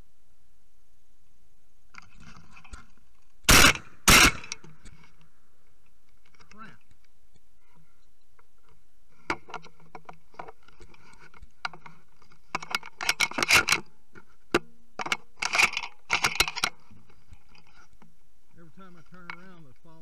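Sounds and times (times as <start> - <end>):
handling noise rustling and clicking: 8.4 - 18.1.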